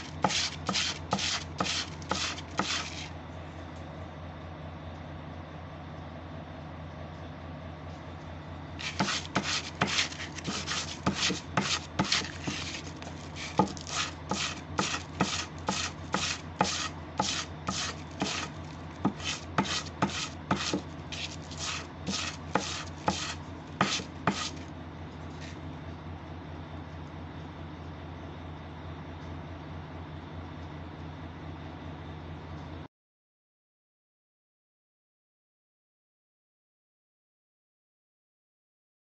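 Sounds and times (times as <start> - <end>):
knife scraping on sandpaper: 0.0 - 3.2, 8.8 - 24.7.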